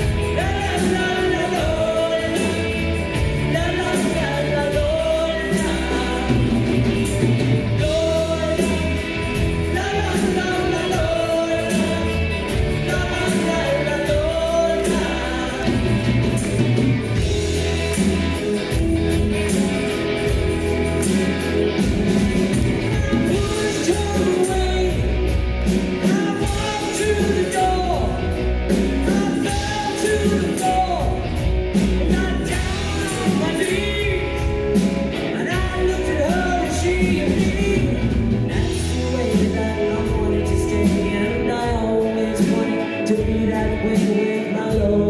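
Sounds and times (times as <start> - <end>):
bass guitar: 0.0 - 45.0
drums keeping a beat: 0.0 - 45.0
electric guitars: 0.0 - 45.0
woman singing lead: 22.6 - 25.2.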